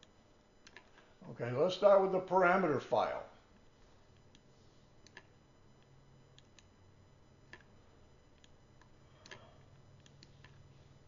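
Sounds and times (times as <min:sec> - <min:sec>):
computer mouse clicks: 0:00.0 - 0:01.0, 0:04.2 - 0:06.7, 0:08.4 - 0:10.7
low steady hum: 0:00.0 - 0:11.0.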